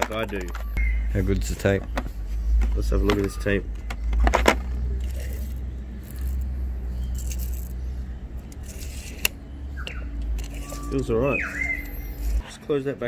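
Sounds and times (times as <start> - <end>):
tape measure blade scraping: 4.9 - 9.4, 10.2 - 12.4
tape measure clicking: 7.1 - 7.8, 8.5 - 9.4.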